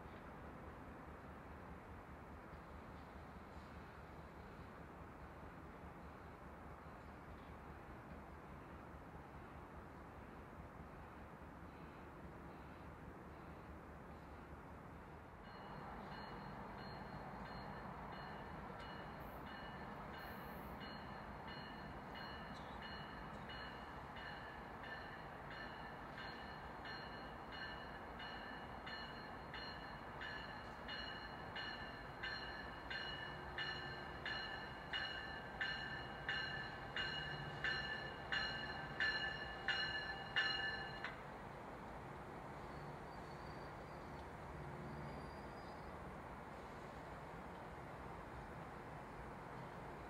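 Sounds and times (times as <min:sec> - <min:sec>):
low train rumble: 0:00.0 - 0:50.0
railroad crossing bell ringing: 0:15.4 - 0:41.2.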